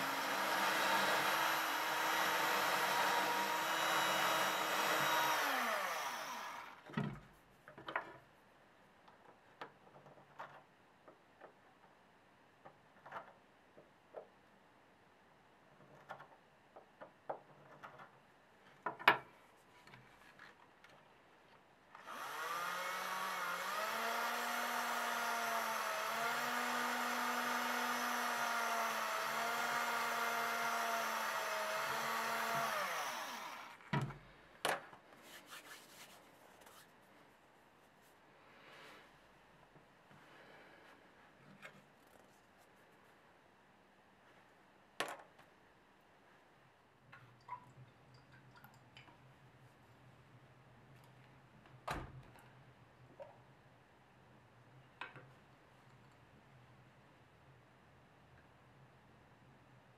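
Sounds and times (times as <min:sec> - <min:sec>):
electric drill drilling wood: 0:00.0 - 0:06.8, 0:22.0 - 0:33.9
small clicks and knocks: 0:09.1 - 0:12.0, 0:15.8 - 0:21.0, 0:55.0 - 0:56.3.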